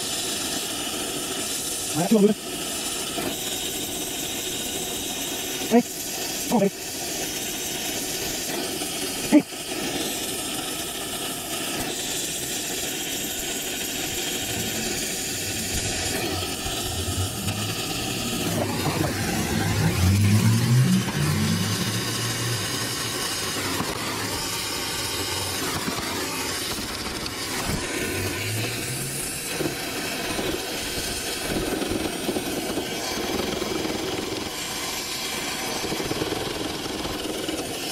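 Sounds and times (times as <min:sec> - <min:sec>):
torch flame hissing: 0:00.0 - 0:37.9
low rumble: 0:13.9 - 0:29.5.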